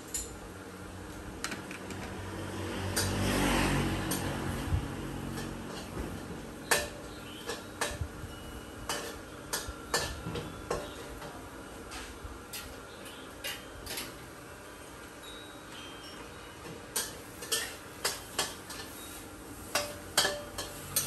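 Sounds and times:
metal utensil clanking on wok: 5.2s - 5.9s, 8.9s - 11.4s, 16.9s - 21.0s.

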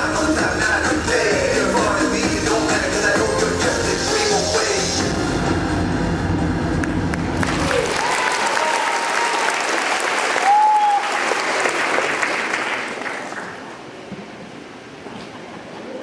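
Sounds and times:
stage music: 0.0s - 8.2s
audience applauding: 6.8s - 13.7s.

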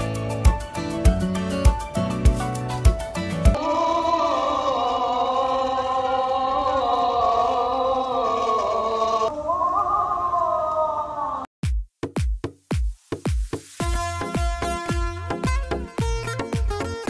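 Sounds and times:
choir-like vocal music: 3.4s - 9.5s
electronic beat: 11.6s - 17.0s.

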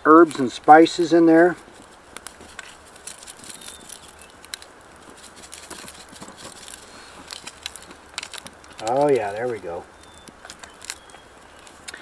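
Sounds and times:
campfire crackling: 0.0s - 12.0s
seasoning pattering onto foil: 0.0s - 12.0s.

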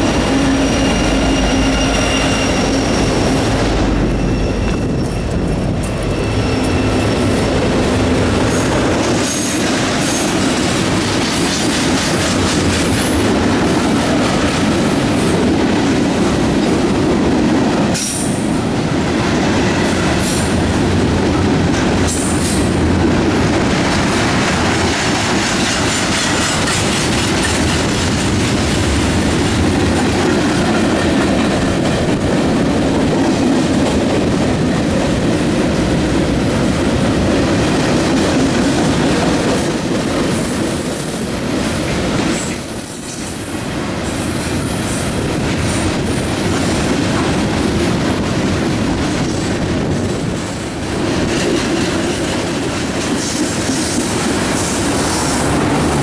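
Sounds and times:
high wheel squeal: 0.0s - 7.7s
freight train wheels on rails: 0.0s - 56.0s.

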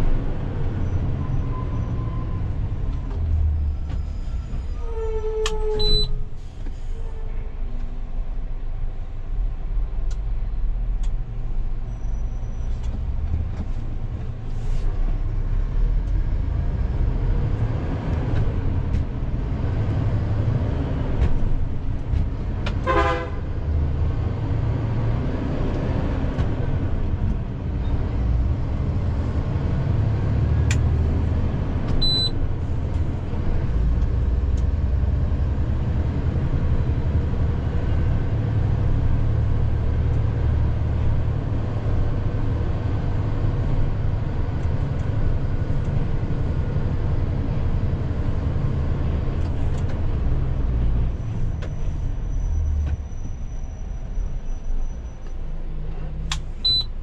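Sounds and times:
diesel truck engine rumbling: 0.0s - 57.0s
vehicle horn toot: 22.8s - 23.4s.

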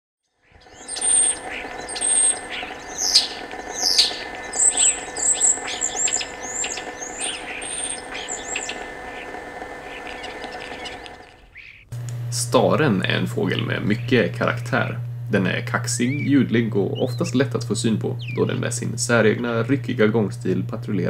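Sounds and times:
starling singing: 0.3s - 11.9s, 12.8s - 21.0s
faint steady hum: 0.3s - 21.0s.

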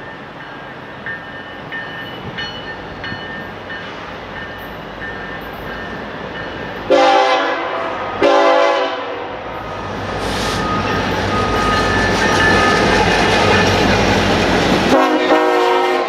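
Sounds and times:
diesel freight train rumbling: 0.0s - 16.0s
locomotive air horn: 6.9s - 9.3s, 14.9s - 16.0s.

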